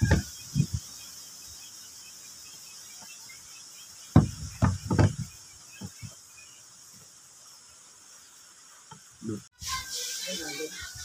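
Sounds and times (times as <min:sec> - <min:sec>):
angle grinder body knocking on wood: 0:00.0 - 0:00.7, 0:04.1 - 0:06.2
steady high hiss: 0:00.0 - 0:11.0.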